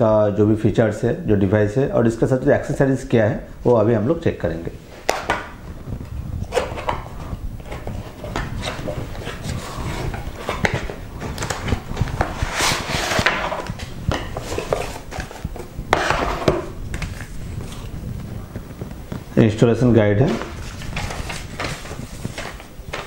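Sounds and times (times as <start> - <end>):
paper leaflets rustling: 6.5 - 23.0
cardboard box scraping and tapping: 7.6 - 17.8.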